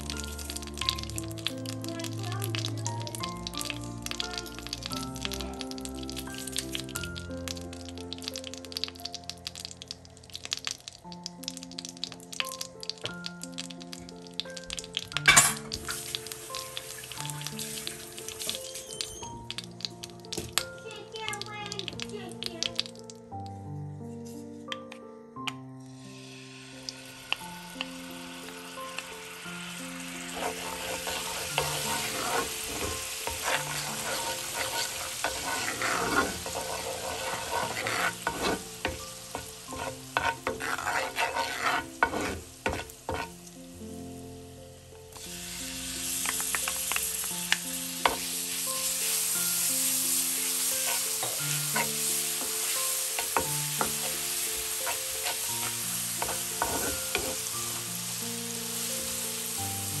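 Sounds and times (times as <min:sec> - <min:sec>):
food sizzling in a pan: 0:00.0 - 0:23.6, 0:25.5 - 1:00.0
utensil stirring and scraping pan: 0:30.1 - 0:43.4, 0:48.0 - 0:49.3, 0:50.2 - 0:58.0.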